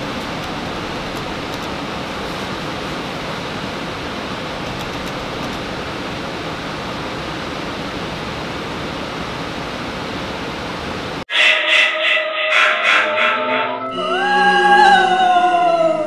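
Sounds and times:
steady rushing noise: 0:00.0 - 0:13.8
choral music: 0:11.3 - 0:16.0.

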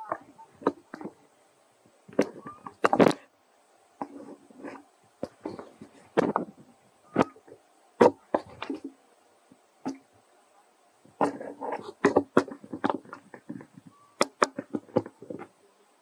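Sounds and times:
quiet scraping: 0:00.0 - 0:03.3, 0:03.9 - 0:10.2, 0:11.0 - 0:15.6.

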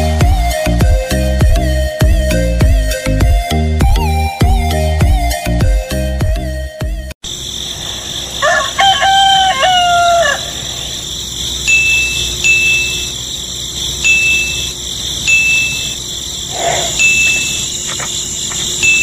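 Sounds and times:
rooster crowing: 0:07.5 - 0:11.4
short high steady tones: 0:11.7 - 0:13.3, 0:14.0 - 0:16.0.

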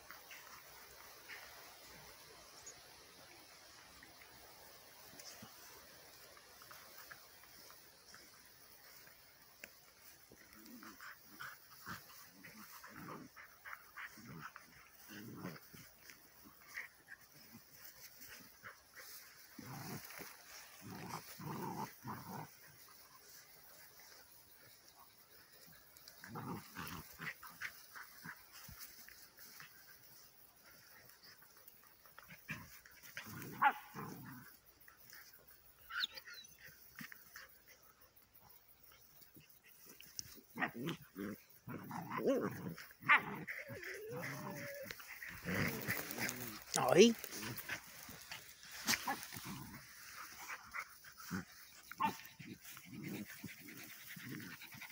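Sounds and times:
dog play growls: 0:10.0 - 0:23.0, 0:25.9 - 0:29.6, 0:32.2 - 0:35.4, 0:39.8 - 0:54.9.

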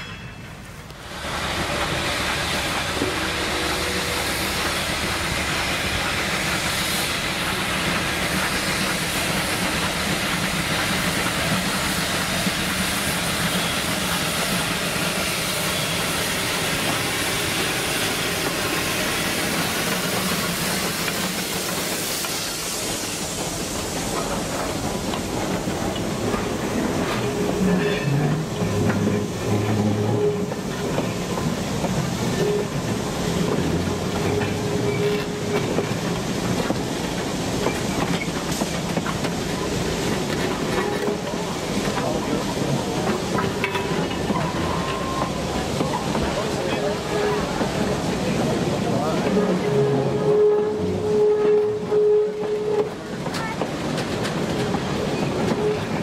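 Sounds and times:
steam locomotive working: 0:00.0 - 0:56.0
steam hiss: 0:00.6 - 0:56.0
wheels clattering over rail joints: 0:24.0 - 0:49.7.

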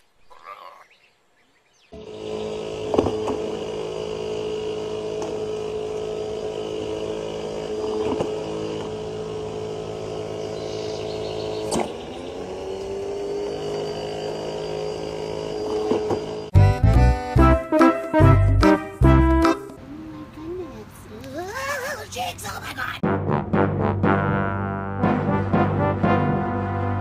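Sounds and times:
ball launcher motor whining: 0:02.0 - 0:17.3.

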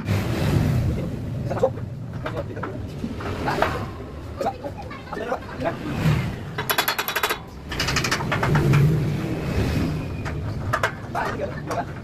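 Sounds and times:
machine rollers rapid metallic clicking: 0:06.6 - 0:09.2.

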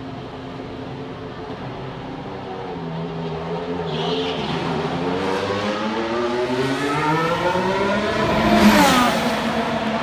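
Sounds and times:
race car engine accelerating: 0:04.2 - 0:10.0.

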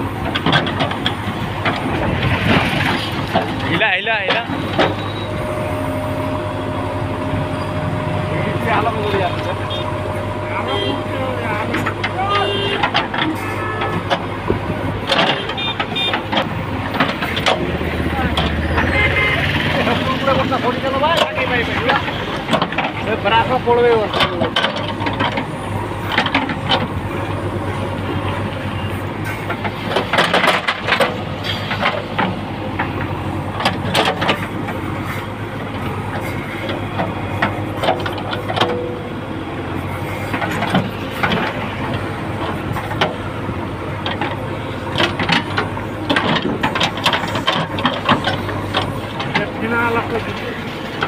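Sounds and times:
diesel engine running: 0:00.0 - 0:51.0.

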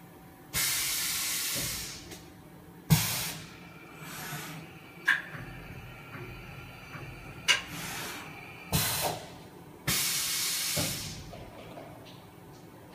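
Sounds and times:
compressed air hissing: 0:00.6 - 0:02.2, 0:02.9 - 0:11.3.

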